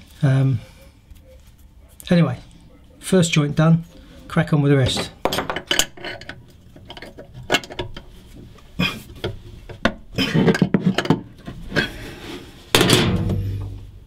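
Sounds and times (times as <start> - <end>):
metal scraping: 3.5 - 8.4
spanner clinking on metal fittings: 4.9 - 8.1.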